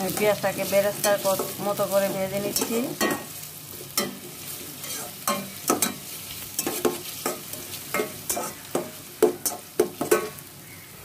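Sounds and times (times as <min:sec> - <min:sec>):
onions sizzling in oil: 0:00.0 - 0:11.0
spoon scraping and knocking pot: 0:06.6 - 0:10.4.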